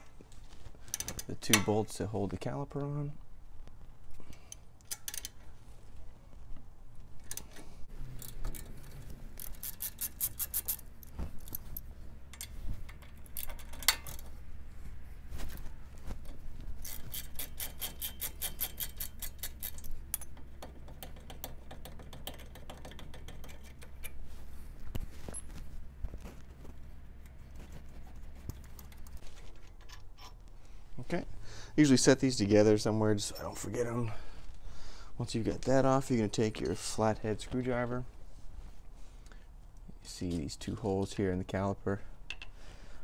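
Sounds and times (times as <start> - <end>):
hand ratchet clicking: 9.4 - 10.8, 16.8 - 24.2.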